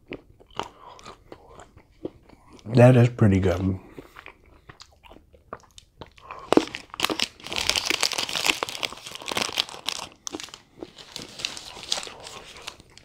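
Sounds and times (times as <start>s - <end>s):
wrapper crackle: 6.6s - 13.0s
wrapper crinkling and rustling: 6.6s - 13.0s.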